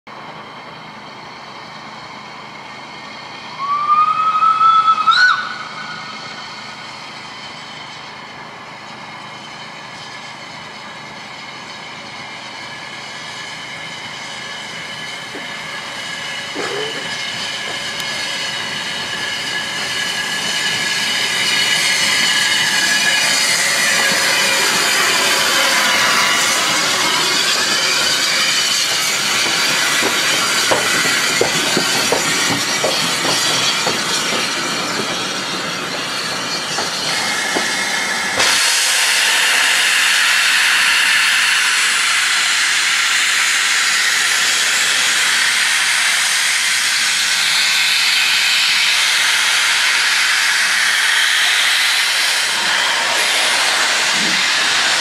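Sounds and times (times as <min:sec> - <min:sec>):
train wheels rumbling on rail: 0:00.1 - 0:55.0
steam locomotive whistle: 0:03.5 - 0:06.2
steam hissing: 0:03.5 - 0:55.0.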